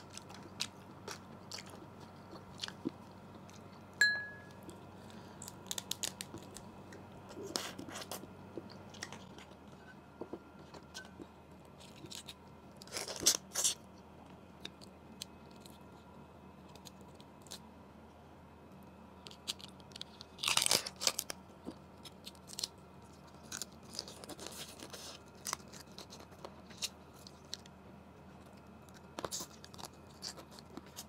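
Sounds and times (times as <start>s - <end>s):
chewing crab: 0.0s - 17.7s, 19.2s - 31.0s
sharp clink: 4.0s - 4.5s.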